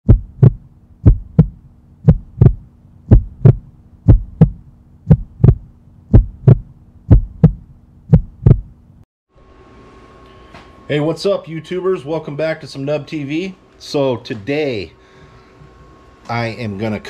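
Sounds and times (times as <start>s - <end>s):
heartbeat thumps: 0.0s - 8.8s
low steady hum: 0.1s - 17.0s.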